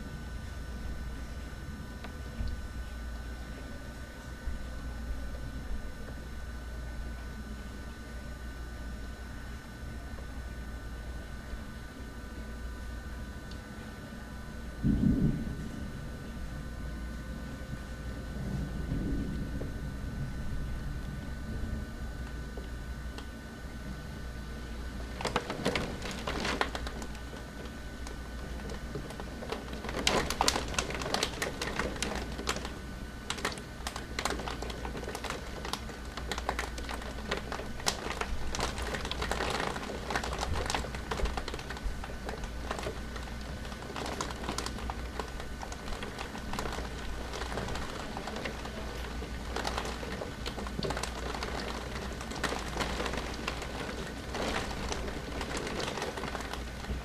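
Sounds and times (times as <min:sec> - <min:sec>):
raindrops striking a window: 0:24.6 - 0:57.0.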